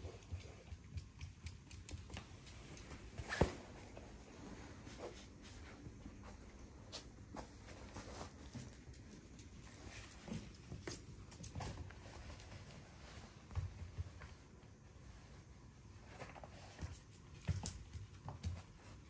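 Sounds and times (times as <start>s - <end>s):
light taps and clicks: 0.1s - 3.0s.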